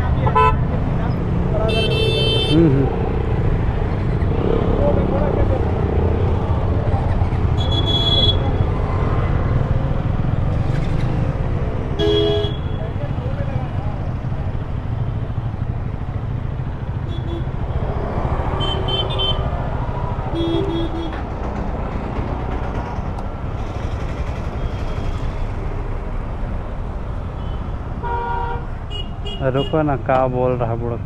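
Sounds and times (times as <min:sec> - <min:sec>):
street traffic: 0:00.0 - 0:31.0
vehicle horn toots: 0:07.6 - 0:08.4, 0:12.0 - 0:12.8.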